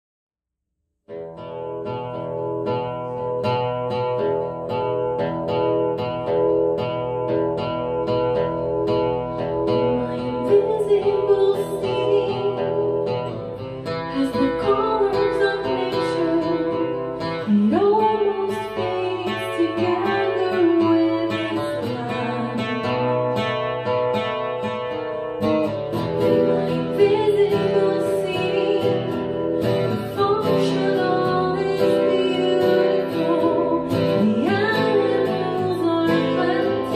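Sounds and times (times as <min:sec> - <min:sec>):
acoustic guitar picking: 0:01.1 - 0:36.9
woman singing: 0:09.3 - 0:24.0, 0:26.2 - 0:36.9.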